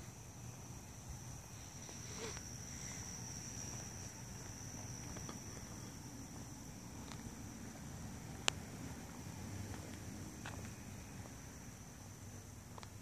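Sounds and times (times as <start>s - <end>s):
faint low hum: 0.0s - 13.0s
night insects trilling: 0.0s - 13.0s.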